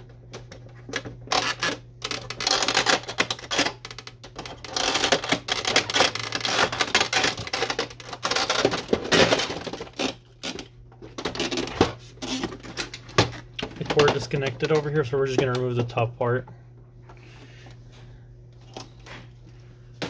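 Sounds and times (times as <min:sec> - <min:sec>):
plastic parts clicking and snapping: 0:00.3 - 0:16.0.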